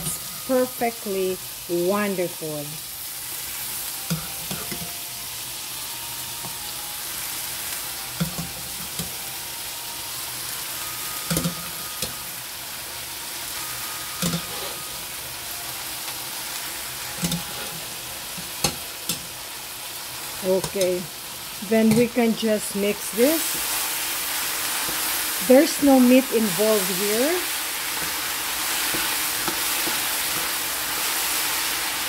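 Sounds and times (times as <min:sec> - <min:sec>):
corn sizzling in hot oil: 0:00.0 - 0:32.0
utensils knocking against pan: 0:11.3 - 0:12.2, 0:14.2 - 0:14.8, 0:17.2 - 0:17.8.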